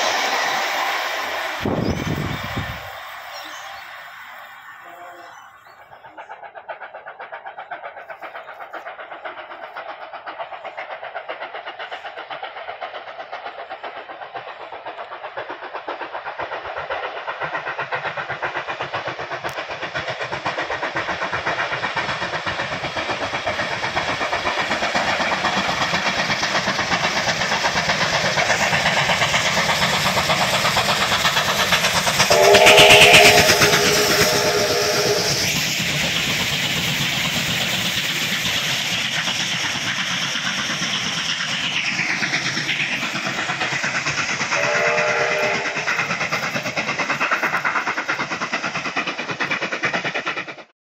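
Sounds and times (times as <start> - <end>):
steam locomotive exhaust beat: 0.0 - 50.7
steam whistle: 32.2 - 35.6, 44.6 - 46.0.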